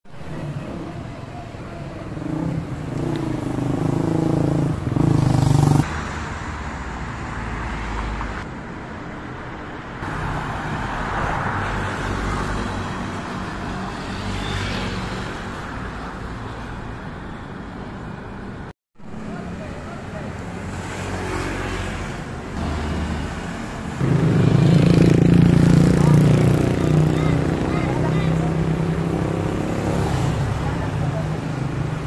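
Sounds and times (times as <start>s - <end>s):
vehicle engine: 0.1s - 8.5s, 19.1s - 32.0s
traffic rumble: 0.1s - 32.0s.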